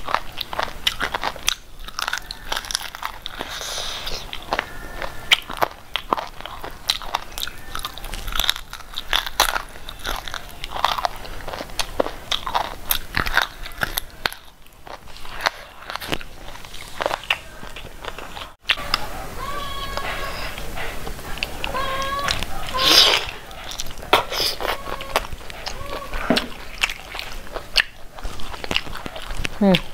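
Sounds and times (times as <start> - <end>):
crunching and chewing food: 0.0 - 29.9.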